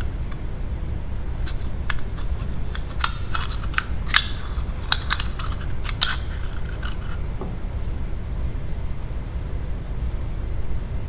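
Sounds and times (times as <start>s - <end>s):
low steady hum: 0.0s - 11.0s
magnet tool clicking on metal: 2.7s - 7.2s.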